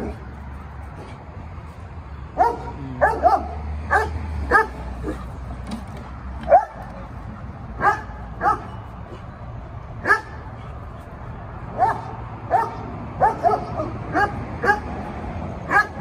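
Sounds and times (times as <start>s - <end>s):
dog barking: 2.4s - 5.3s, 6.5s - 6.8s, 7.8s - 8.8s, 10.0s - 10.4s, 11.7s - 15.0s, 15.7s - 16.0s.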